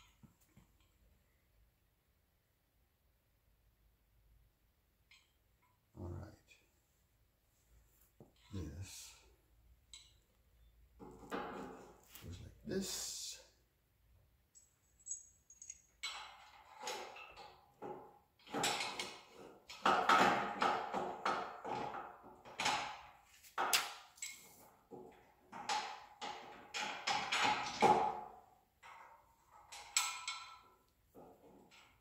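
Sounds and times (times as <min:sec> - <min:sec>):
metal hardware clinking and rattling: 0:14.6 - 0:17.8, 0:25.5 - 0:28.2, 0:28.8 - 0:32.0.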